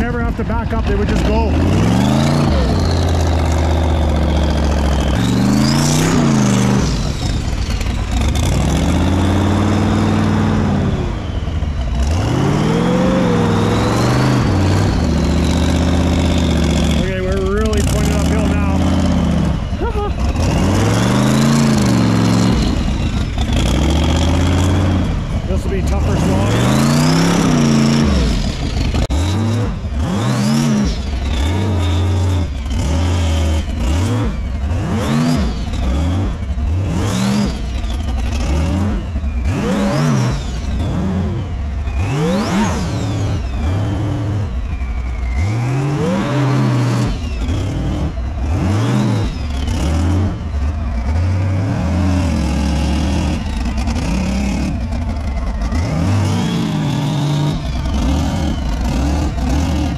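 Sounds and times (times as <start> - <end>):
low engine rumble: 0.0 - 42.2, 42.8 - 59.9
truck engine revving: 0.0 - 59.9.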